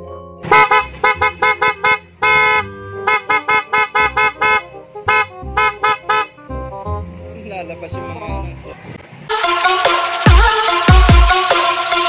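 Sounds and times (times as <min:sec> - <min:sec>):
car horn honking: 0:00.4 - 0:06.4, 0:09.3 - 0:12.0.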